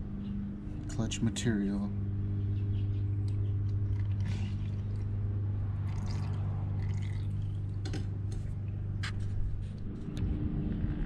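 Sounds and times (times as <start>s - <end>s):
low machine hum: 0.0s - 11.0s
small splashes: 5.8s - 7.8s.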